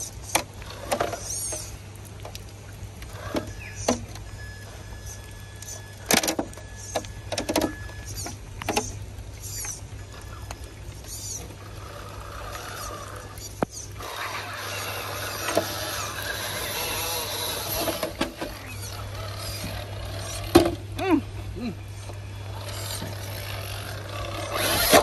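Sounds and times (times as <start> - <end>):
rc car motor whirring: 0.0 - 1.7, 6.6 - 20.8, 22.4 - 25.0.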